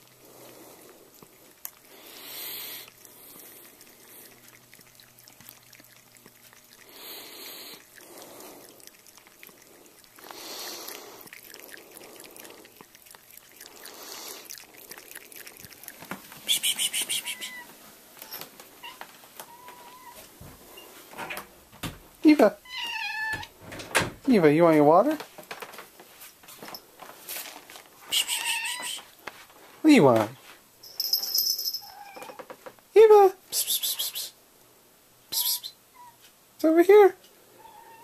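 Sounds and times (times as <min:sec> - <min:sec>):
cat lapping water: 0:00.0 - 0:17.7
soft puffs of noise: 0:16.2 - 0:18.4.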